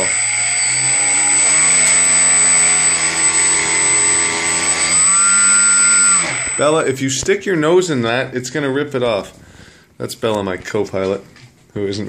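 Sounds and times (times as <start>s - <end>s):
electric motor spinning propeller: 0.0s - 6.7s
thin high whine: 0.0s - 7.0s.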